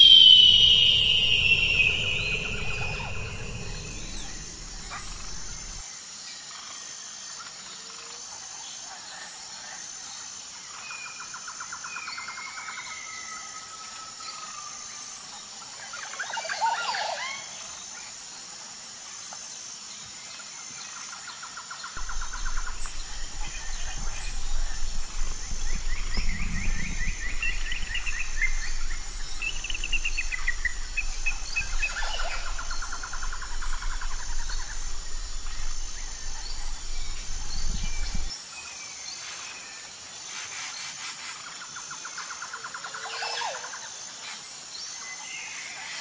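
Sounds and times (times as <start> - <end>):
gliding bird notes: 0.0 - 5.8, 22.0 - 38.3
low rumble: 0.0 - 5.8, 22.0 - 38.3
rapid trilled calls: 0.0 - 5.8, 22.0 - 38.3
pulsing high insect chirp: 0.0 - 9.0, 9.6 - 46.0.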